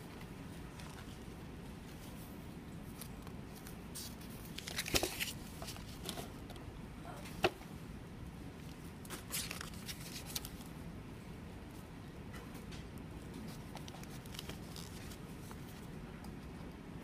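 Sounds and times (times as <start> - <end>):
paper pages rustling: 2.9 - 6.3, 9.1 - 10.7, 13.4 - 15.9.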